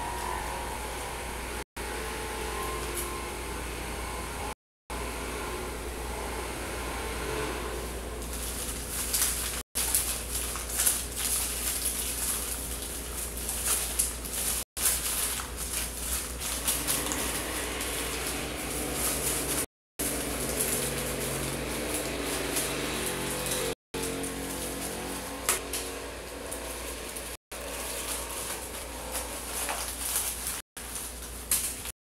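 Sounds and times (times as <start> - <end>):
paper crinkling and rustling: 8.2 - 31.9.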